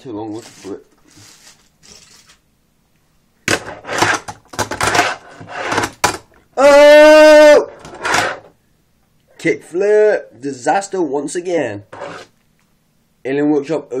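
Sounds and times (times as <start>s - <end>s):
fingerboard wheels clattering: 3.5s - 6.3s
person crying out in excitement: 6.6s - 7.8s.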